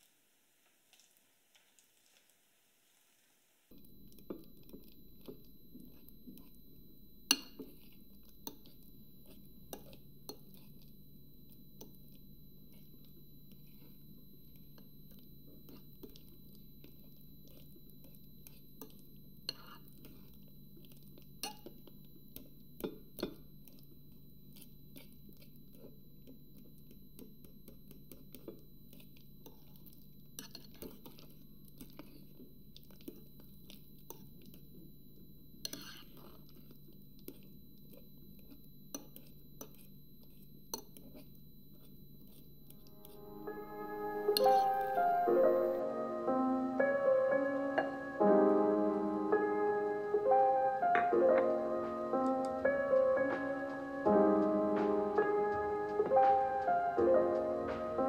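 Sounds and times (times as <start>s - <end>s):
fork mashing bananas: 3.7s - 45.8s
fork clinking on glass bowl: 7.2s - 10.9s, 11.5s - 20.2s, 21.1s - 23.8s, 26.8s - 31.4s, 35.6s - 39.9s, 40.7s - 45.1s.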